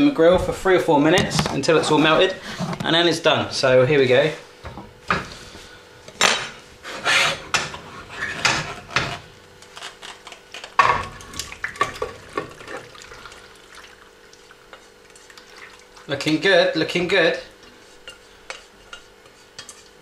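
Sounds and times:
utensil clanking and scraping pan: 6.2 - 11.2, 17.6 - 20.0.

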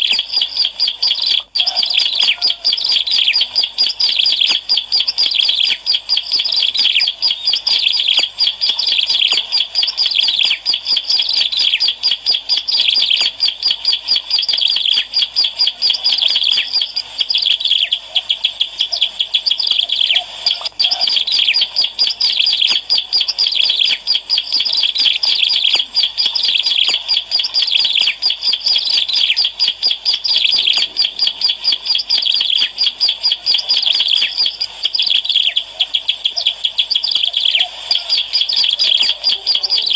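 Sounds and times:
bird chirping rapidly: 0.0 - 39.9.

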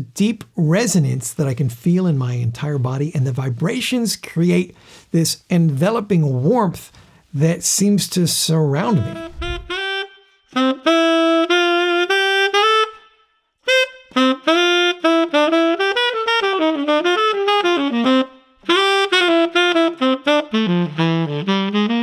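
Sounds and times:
tenor saxophone jazz melody: 8.8 - 22.0.

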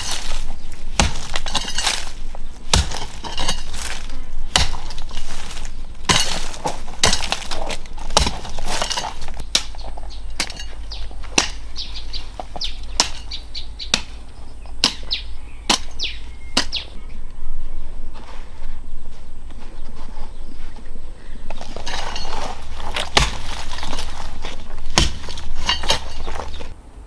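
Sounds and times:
hoe chopping into soil: 0.0 - 14.2, 14.8 - 16.8, 21.5 - 26.8
birds chirping: 0.0 - 26.8.

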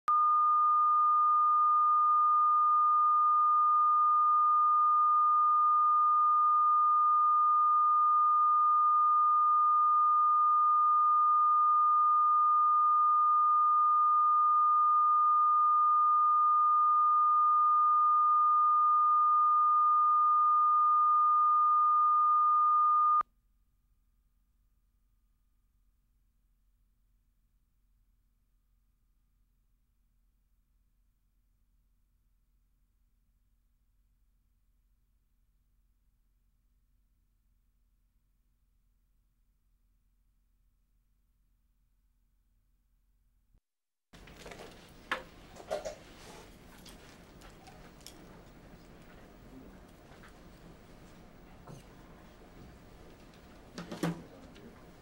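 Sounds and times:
pure reference tone: 0.0 - 23.2.

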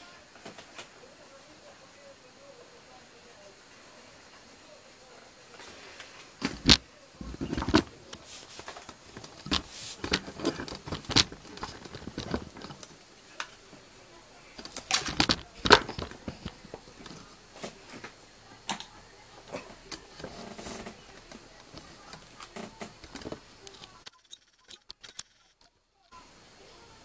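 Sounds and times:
hands handling phone clicks and knocks: 6.4 - 13.5, 14.6 - 18.9.

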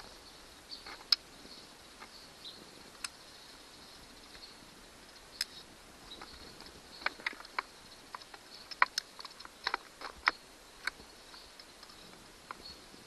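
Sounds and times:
faint high-pitched hiss: 0.0 - 13.0
sharp clicks of connectors: 6.6 - 11.0.

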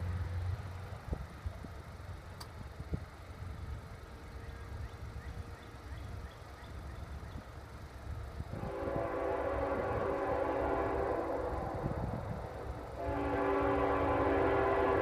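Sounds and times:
low background rumble: 0.0 - 15.0
locomotive air horn: 8.5 - 15.0.

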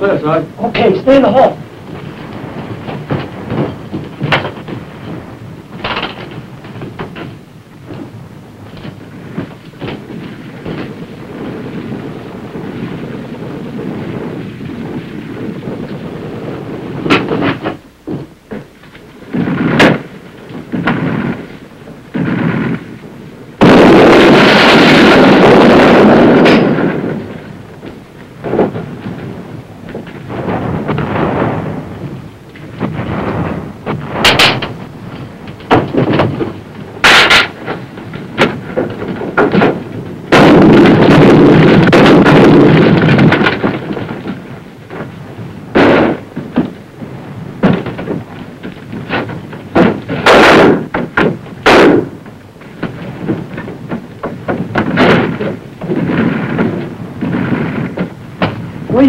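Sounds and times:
sharp gunshots and bangs: 0.0 - 18.6, 19.3 - 59.0
long loud blast: 19.3 - 53.7.

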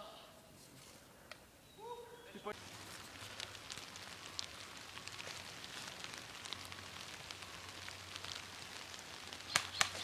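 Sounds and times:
crackling in dry leaves: 2.5 - 10.0
footstep crunching dry leaves: 2.6 - 10.0.

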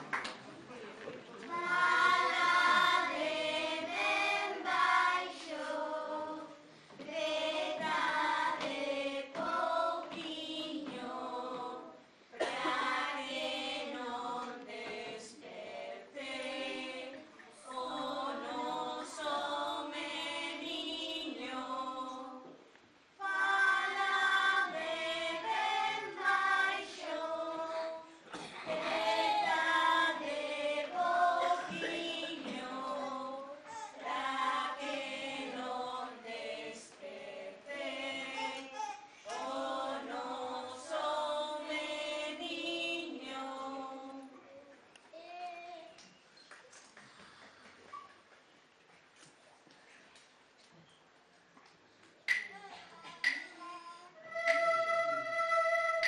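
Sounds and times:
children's choir singing: 1.5 - 22.6, 23.2 - 44.4, 54.2 - 56.0
choir breathing: 23.4 - 40.7.

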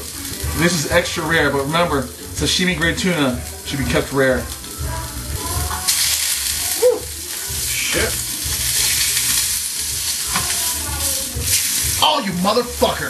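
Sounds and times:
fish searing in hot oil: 0.0 - 13.0
grease spattering: 5.7 - 13.0.

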